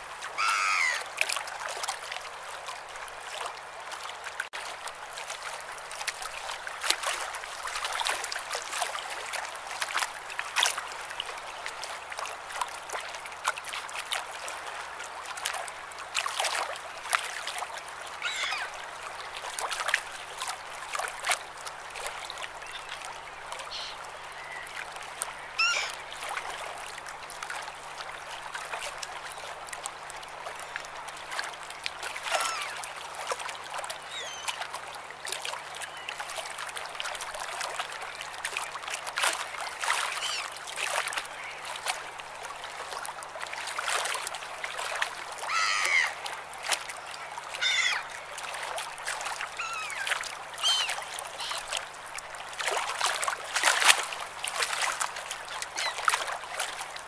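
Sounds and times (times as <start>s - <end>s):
small waves lapping at shore: 0.0s - 57.0s
gull cries: 0.4s - 1.1s, 18.2s - 18.7s, 25.6s - 26.0s, 32.3s - 32.8s, 45.5s - 46.2s, 47.6s - 48.1s, 49.6s - 51.6s.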